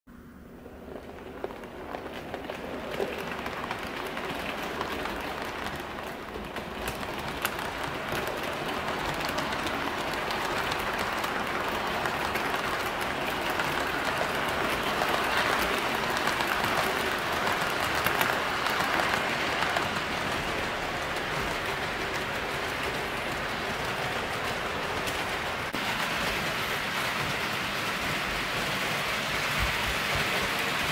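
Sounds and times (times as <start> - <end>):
model train wheels on rail: 0.1 - 30.9
clicks over rail joints: 0.9 - 30.9.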